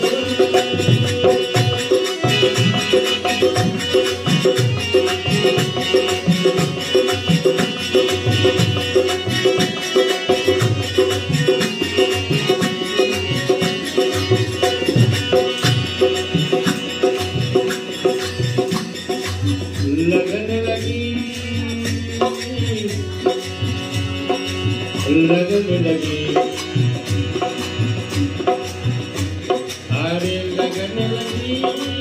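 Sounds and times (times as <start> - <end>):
hand drum rhythm: 0.0 - 32.0
harmonium chords: 0.0 - 32.0.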